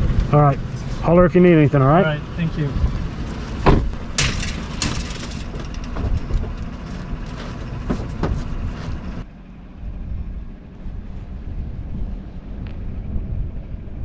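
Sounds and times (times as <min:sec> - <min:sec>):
truck engine idling: 0:00.0 - 0:13.4
knocks and clatters: 0:03.6 - 0:09.1.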